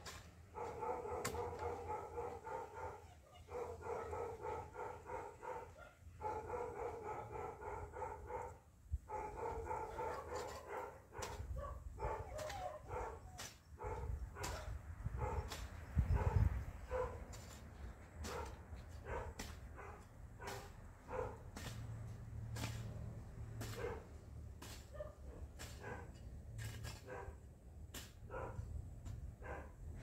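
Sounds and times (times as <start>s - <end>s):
dog barking: 0.5s - 17.2s, 18.2s - 21.5s, 23.6s - 24.2s, 24.8s - 26.2s, 27.0s - 27.4s, 28.2s - 28.7s, 29.4s - 29.8s.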